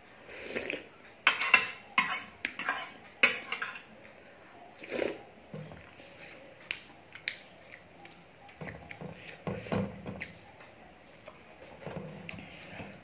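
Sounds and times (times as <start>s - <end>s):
chewing and mouth sounds: 6.6s - 11.5s.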